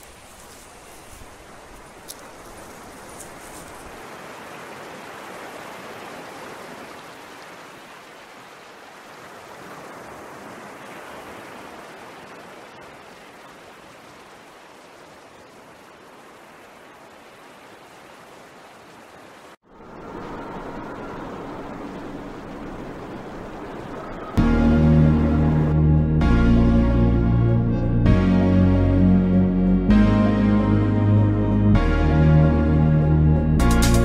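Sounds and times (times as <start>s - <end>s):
music: 24.4s - 34.0s.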